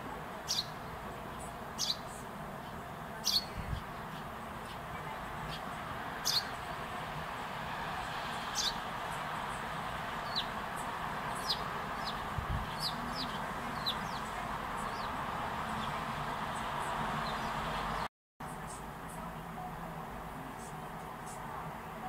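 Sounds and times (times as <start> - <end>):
sparrows chirping: 0.0 - 18.8, 20.6 - 21.6.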